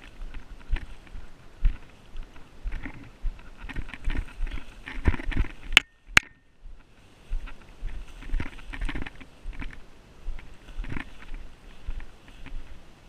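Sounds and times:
footsteps through tall grass: 0.0 - 5.8, 6.6 - 13.0
stems swishing against legs: 0.0 - 13.0.

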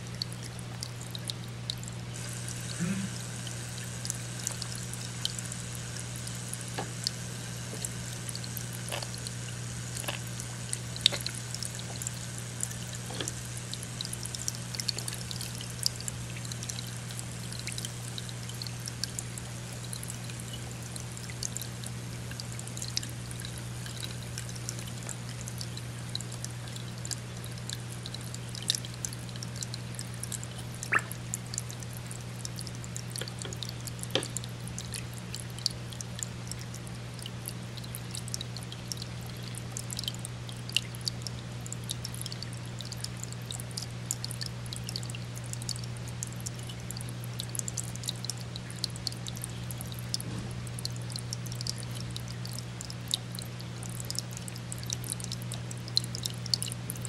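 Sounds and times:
aquarium filter water trickling: 0.0 - 57.0
small ticks and splashes: 0.0 - 57.0.

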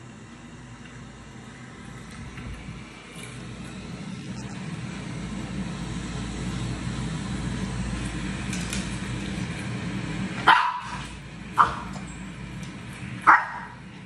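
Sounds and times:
steady low hum: 0.0 - 14.0
puppy barking: 10.4 - 12.0, 13.2 - 13.8.

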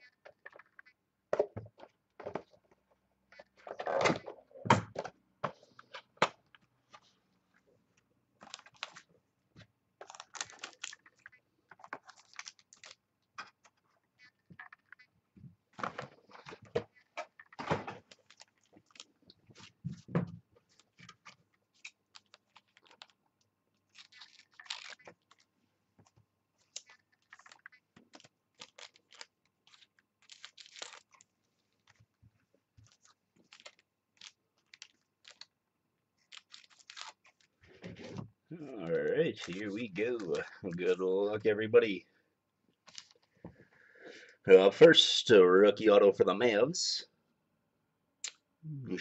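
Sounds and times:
card packs clicking and crinkling: 8.4 - 9.1, 10.0 - 13.8, 15.8 - 19.8, 20.6 - 23.2, 23.8 - 32.0, 32.8 - 35.5, 36.2 - 38.0, 38.8 - 41.0, 42.8 - 43.3.

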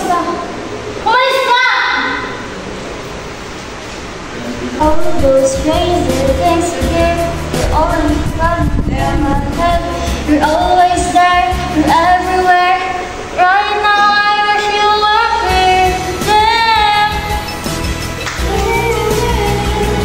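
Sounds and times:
backing music: 4.6 - 20.0
woman singing: 4.8 - 17.5, 18.3 - 20.0.

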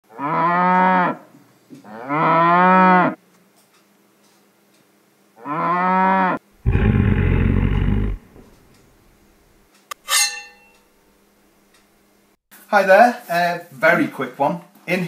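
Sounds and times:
cow mooing: 0.1 - 1.2, 1.8 - 3.2, 5.4 - 8.6
rough low animal call: 5.5 - 8.8.

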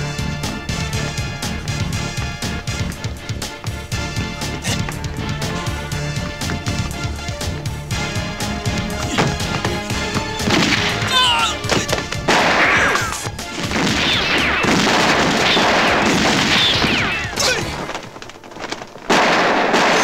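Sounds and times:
action film music with hits: 0.0 - 17.4
crashes and bangs: 8.6 - 20.0.

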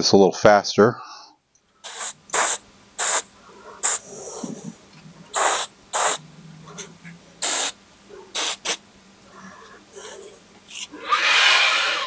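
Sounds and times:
spray bottle spritzes: 1.8 - 4.7, 5.3 - 6.3, 7.4 - 8.8.

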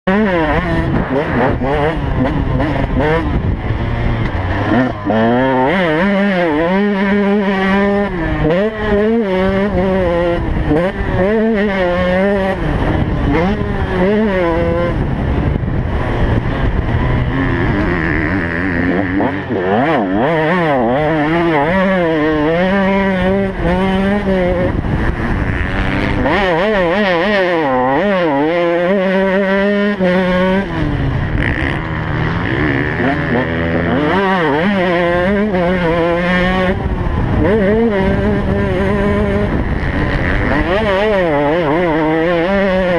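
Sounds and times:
motocross engine revving: 0.0 - 42.9.

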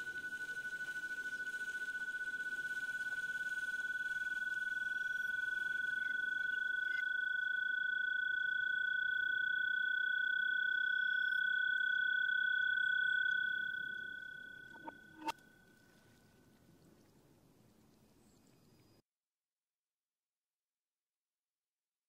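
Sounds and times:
high electronic tones: 14.0 - 15.3.

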